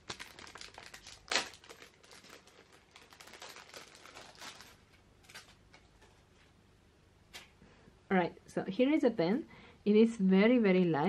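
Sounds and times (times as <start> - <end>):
packaging crinkling and rustling: 0.0 - 6.5.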